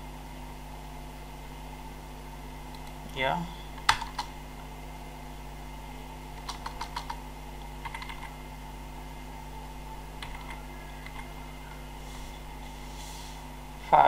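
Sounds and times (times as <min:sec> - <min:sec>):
steady low hum: 0:00.0 - 0:14.0
keyboard keys clicking: 0:03.8 - 0:04.3, 0:06.4 - 0:07.2, 0:07.8 - 0:08.3, 0:10.2 - 0:11.3.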